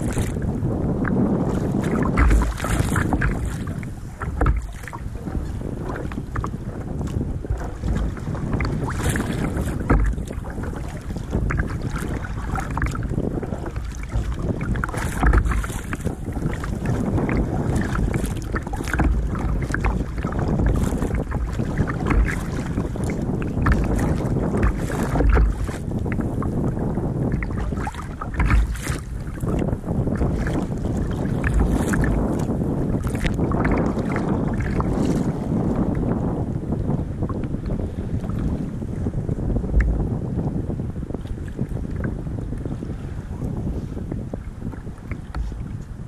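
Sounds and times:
water splashing against kayak: 0:00.0 - 0:46.0
wind rumbling on microphone: 0:00.0 - 0:46.0.

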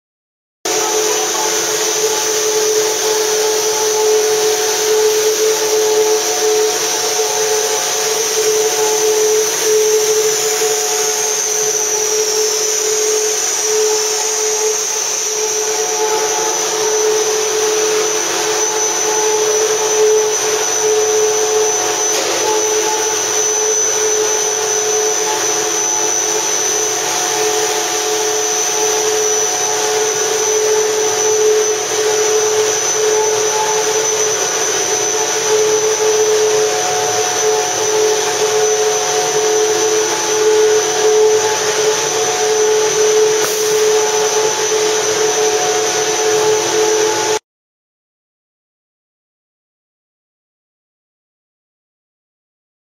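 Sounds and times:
high-pitched whine: 0:00.7 - 0:47.4
machine hum and hiss: 0:00.7 - 0:47.4.

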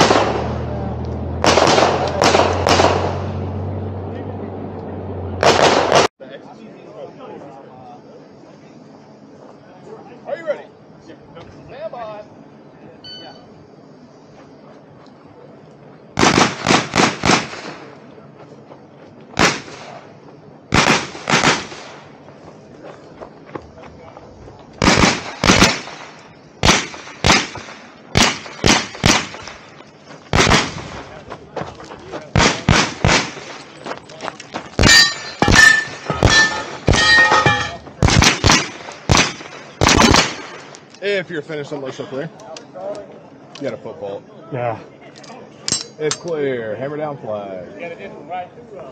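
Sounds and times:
gunshots with echo: 0:00.0 - 0:00.8, 0:01.4 - 0:03.4, 0:05.4 - 0:06.1, 0:16.2 - 0:18.0, 0:20.7 - 0:22.1, 0:24.8 - 0:29.6, 0:30.3 - 0:31.0, 0:32.3 - 0:33.7, 0:34.8 - 0:40.7
steel plate ringing: 0:34.8 - 0:37.8.

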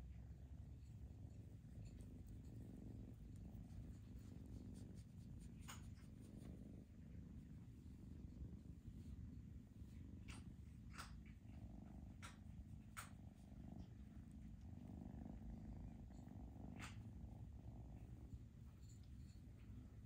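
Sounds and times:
kitten purring: 0:00.0 - 0:20.0.

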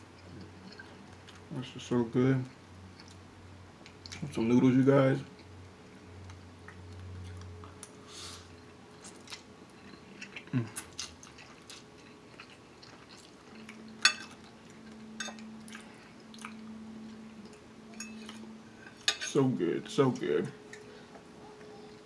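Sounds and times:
person chewing noodles: 0:06.2 - 0:17.6.

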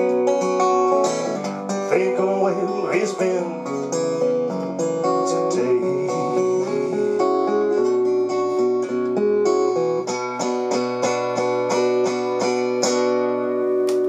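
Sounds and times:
acoustic guitar picking and strumming: 0:00.0 - 0:14.0.

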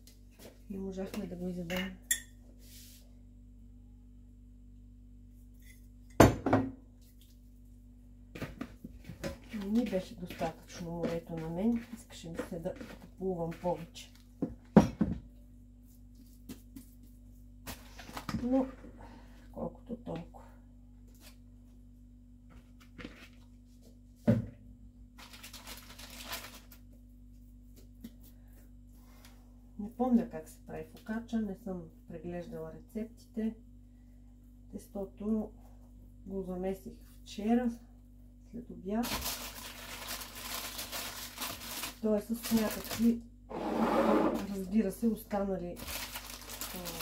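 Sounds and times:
knocks on kitchen surface: 0:06.2 - 0:06.8
steady low hum: 0:26.7 - 0:39.5.

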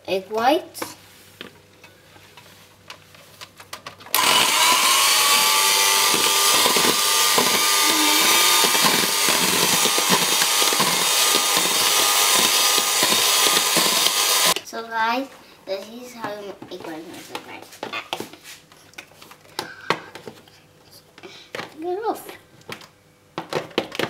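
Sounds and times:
beaters whipping egg whites: 0:04.1 - 0:14.6
electric hand mixer whining: 0:04.1 - 0:14.6.

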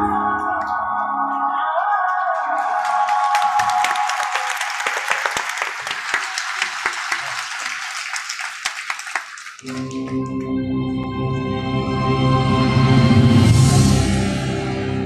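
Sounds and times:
music playing: 0:00.0 - 0:03.6, 0:09.6 - 0:15.0
audience applauding: 0:01.8 - 0:10.5.

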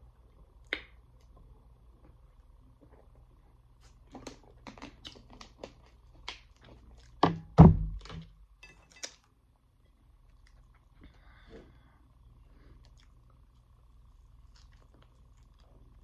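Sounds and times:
deep thuds: 0:07.2 - 0:08.3.

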